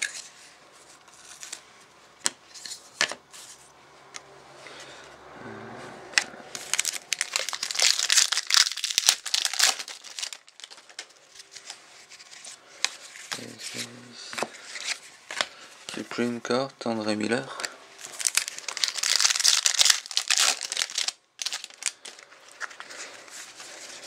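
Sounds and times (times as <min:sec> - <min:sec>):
foil wrapper crinkling and tearing: 0:06.6 - 0:12.4, 0:18.0 - 0:24.0.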